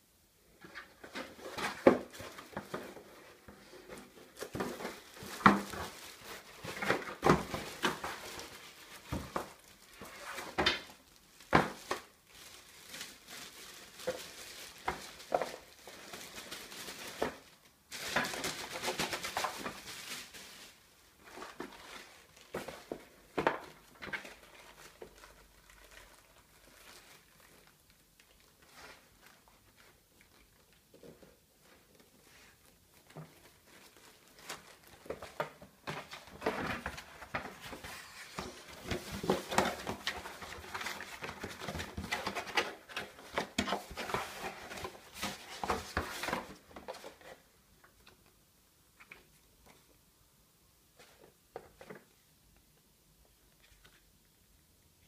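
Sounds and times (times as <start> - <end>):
plastic bag crinkling: 1.2 - 30.9.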